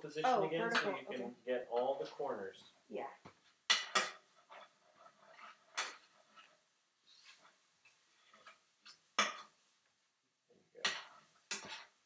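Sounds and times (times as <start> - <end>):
spatula scraping skillet: 3.3 - 9.7, 10.8 - 12.0.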